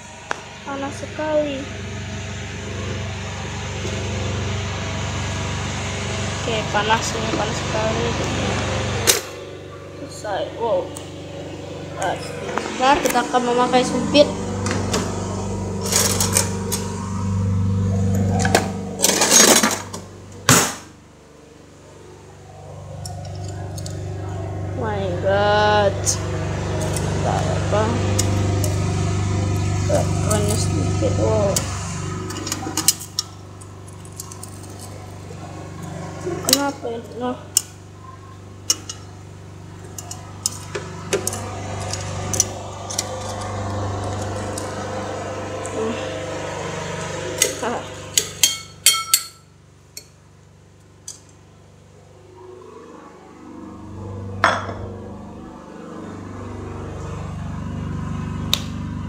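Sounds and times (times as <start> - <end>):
low hum: 0.0 - 59.0
utensils clinking on metal tray: 48.2 - 49.4.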